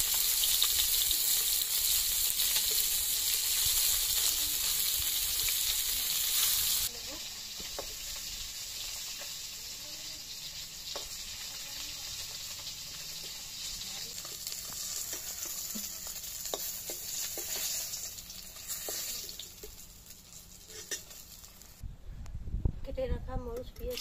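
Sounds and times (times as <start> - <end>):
fish sizzling in hot oil: 0.0 - 21.8
metal spatula scraping a pan: 10.9 - 21.7.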